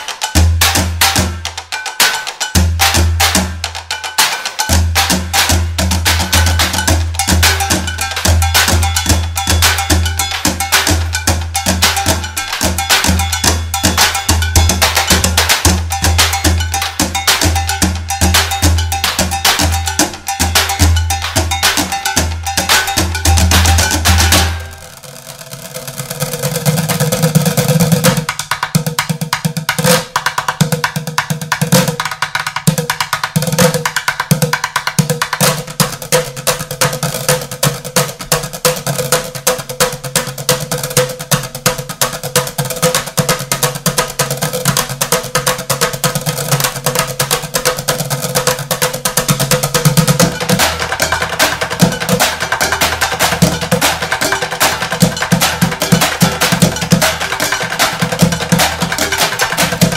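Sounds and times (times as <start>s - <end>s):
drumsticks beating plastic buckets: 0.0s - 59.9s.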